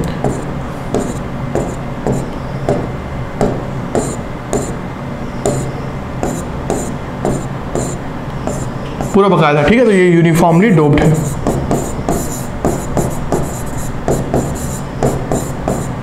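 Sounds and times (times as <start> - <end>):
pen tapping on board: 0.2 - 4.8, 5.5 - 9.2, 11.0 - 15.9.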